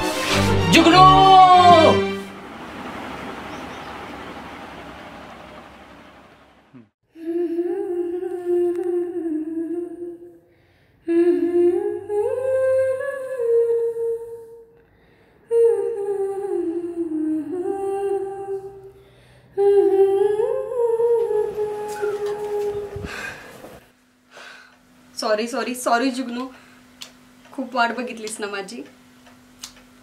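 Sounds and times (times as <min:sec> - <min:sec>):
person humming a melody: 0:06.7 - 0:10.3, 0:19.6 - 0:23.4.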